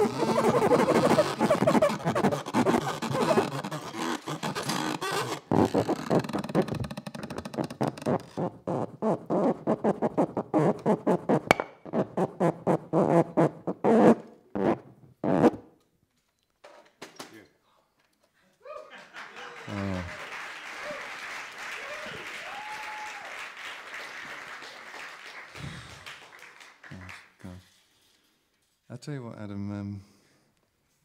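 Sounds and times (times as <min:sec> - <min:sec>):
stick rasping on plastic card: 0:00.0 - 0:12.8.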